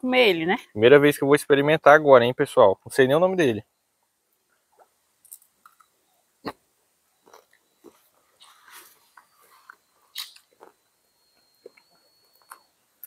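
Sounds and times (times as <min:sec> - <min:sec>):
mouth clicks: 0:04.7 - 0:06.6, 0:07.2 - 0:12.8
person chewing: 0:07.2 - 0:10.8.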